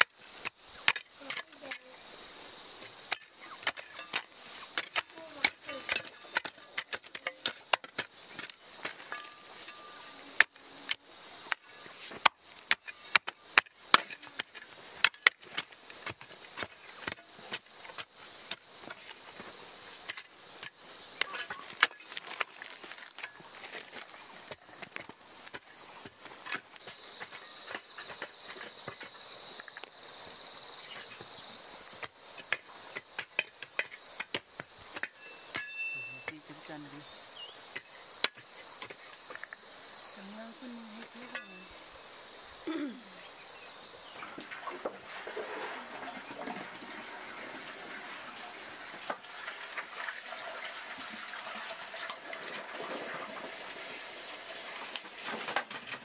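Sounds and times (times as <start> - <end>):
faint steady high tone: 35.1 - 37.6, 40.2 - 41.8.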